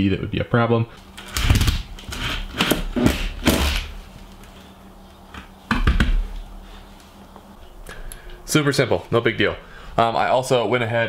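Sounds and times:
sharp knocks and clatters: 0:05.3 - 0:06.3.

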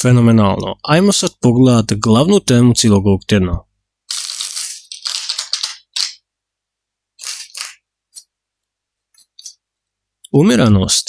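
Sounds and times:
cards being shuffled: 0:04.1 - 0:06.2, 0:07.2 - 0:08.3.

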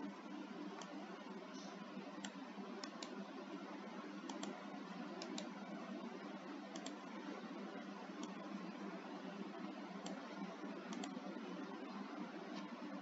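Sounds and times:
low background hum: 0:00.0 - 0:13.0
mouse and keyboard clicks: 0:04.2 - 0:04.6, 0:05.2 - 0:05.5, 0:06.7 - 0:07.0, 0:10.9 - 0:11.2.

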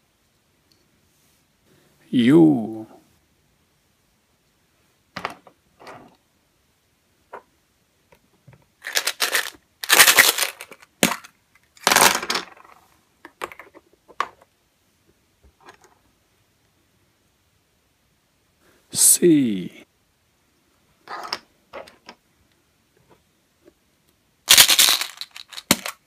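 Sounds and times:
candies clicking: 0:08.8 - 0:11.3, 0:24.5 - 0:26.0
candies clattering onto table: 0:08.8 - 0:12.7, 0:24.5 - 0:26.0.

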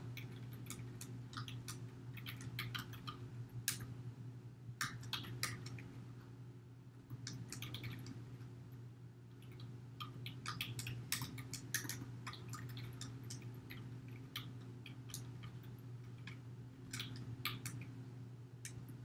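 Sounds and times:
keyboard typing clicks: 0:04.8 - 0:05.9, 0:07.1 - 0:08.2, 0:09.4 - 0:18.0.

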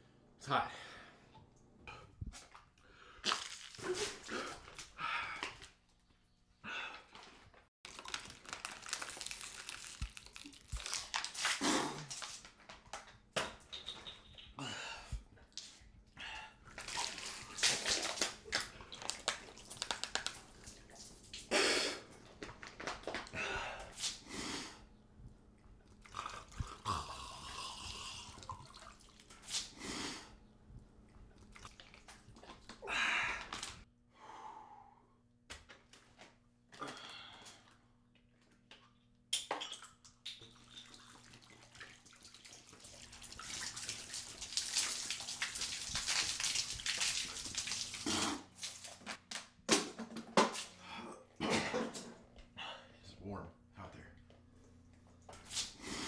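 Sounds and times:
person gulping water from bottle: 0:25.2 - 0:33.7, 0:42.7 - 0:48.6.

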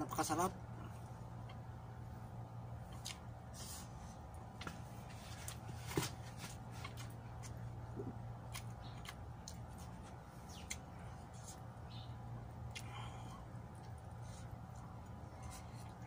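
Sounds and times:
faint steady hum: 0:00.0 - 0:16.0
chewing and lip-smacking: 0:06.7 - 0:12.0, 0:12.6 - 0:16.0.

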